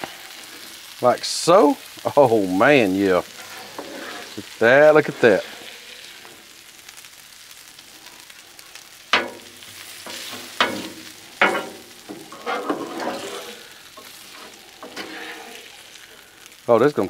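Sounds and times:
meat and vegetables sizzling on griddle: 0:00.0 - 0:17.0
metal spatula scraping griddle: 0:02.8 - 0:07.0, 0:07.8 - 0:16.6.

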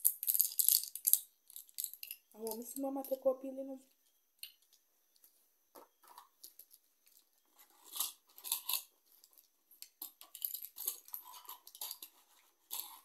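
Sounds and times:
rustling and crinkling handling noise: 0:05.1 - 0:13.0.

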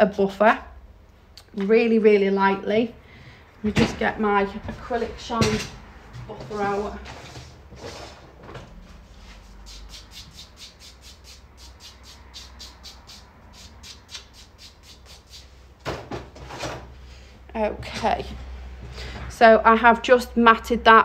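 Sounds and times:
nail buffer scratching: 0:09.7 - 0:15.5.

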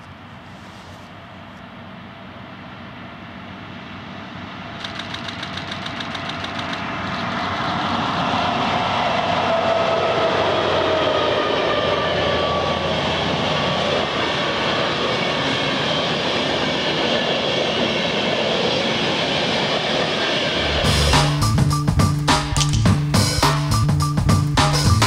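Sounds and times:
diesel locomotive engines passing: 0:00.0 - 0:25.0
train wheels on rails: 0:04.4 - 0:25.0
music: 0:20.6 - 0:25.0.

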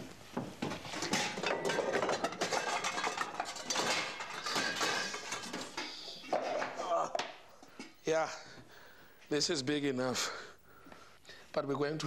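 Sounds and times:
metal pots and pans clanking: 0:00.6 - 0:08.0.

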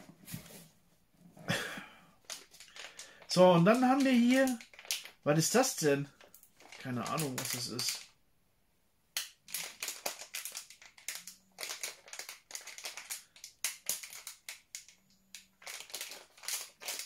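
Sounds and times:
packaging rustling and crinkling: 0:02.2 - 0:08.1, 0:09.4 - 0:17.0.

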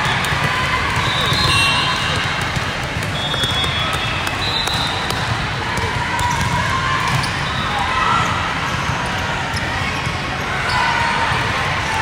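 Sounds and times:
volleyballs thumping: 0:00.0 - 0:07.3
crowd chatter: 0:00.0 - 0:12.0.

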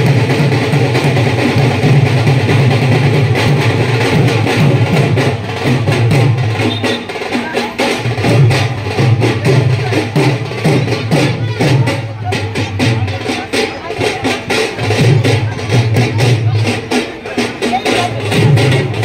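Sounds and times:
music with drum beat: 0:00.0 - 0:19.0.

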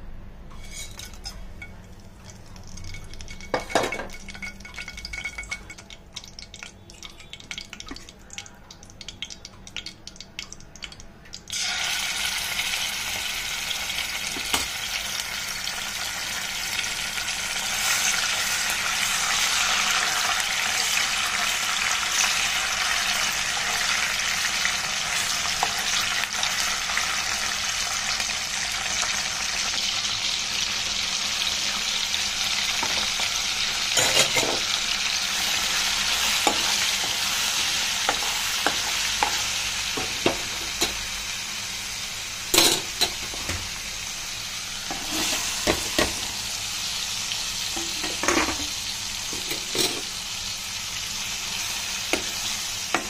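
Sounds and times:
spices crackling in hot oil: 0:00.6 - 0:53.0
paste sizzling in hot oil: 0:11.5 - 0:48.1.

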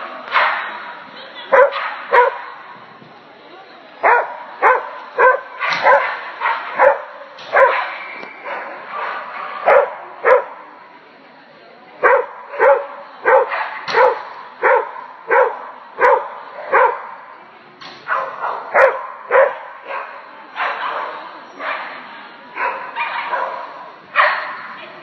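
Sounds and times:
dog barking: 0:00.3 - 0:00.7, 0:01.5 - 0:02.5, 0:04.0 - 0:10.5, 0:12.0 - 0:17.1, 0:18.1 - 0:21.9, 0:22.6 - 0:24.6.

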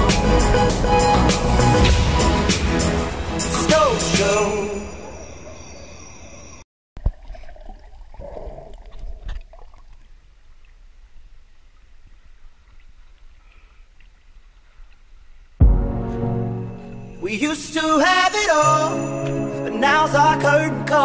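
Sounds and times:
music: 0:00.0 - 0:05.1, 0:15.6 - 0:21.0
sea water sloshing and splashing: 0:07.0 - 0:14.6.

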